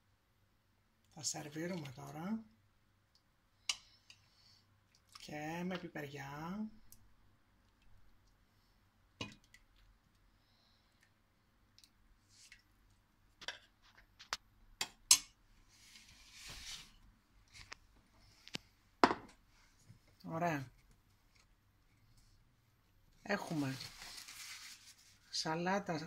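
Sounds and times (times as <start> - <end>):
soup splashing: 3.7 - 5.6.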